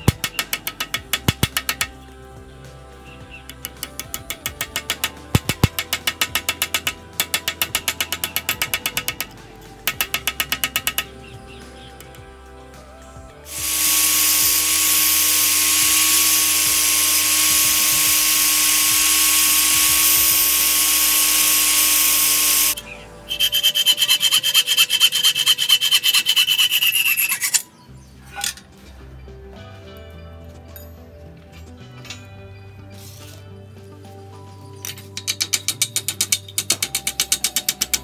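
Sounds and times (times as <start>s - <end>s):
angle grinder grinding steel: 0.0s - 12.4s, 13.3s - 27.7s, 34.9s - 38.0s.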